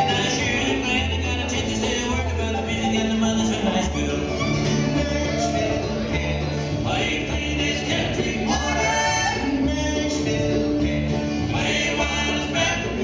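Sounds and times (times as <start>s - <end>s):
fiddle: 0.0s - 9.7s
acoustic guitar: 0.0s - 13.0s
mandolin: 0.0s - 13.0s
person singing: 0.0s - 13.0s
upright bass: 0.0s - 13.0s.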